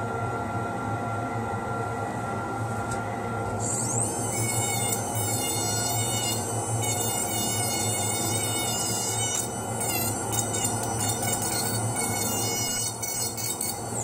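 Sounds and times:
dental handpiece running: 3.6s - 14.0s.

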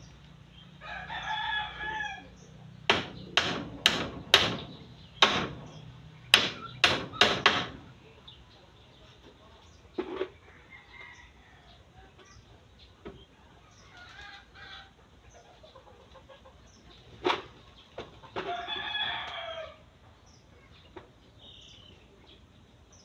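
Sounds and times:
rooster crowing: 0.8s - 2.4s, 18.4s - 19.9s
sharp knocks: 2.9s - 8.0s.

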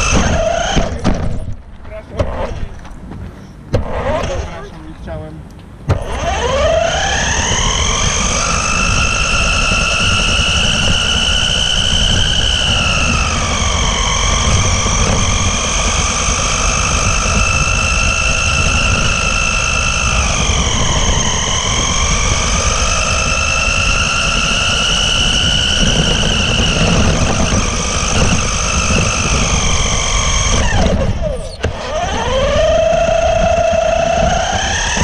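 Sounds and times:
motor and drivetrain whine: 0.0s - 35.0s
tyres rumbling on asphalt: 0.0s - 35.0s.

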